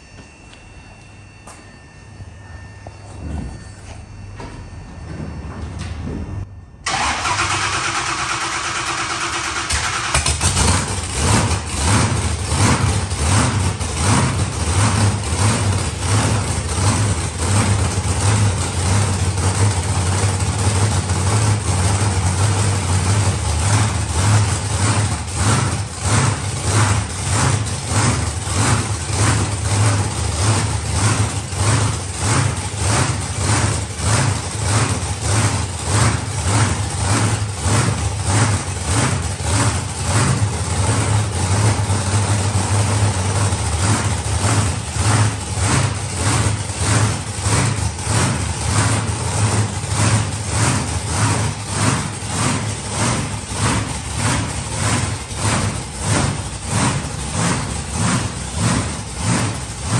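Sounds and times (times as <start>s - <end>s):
monster truck engine starting: 5.8s - 59.9s
engine lumpy idle: 6.8s - 59.9s.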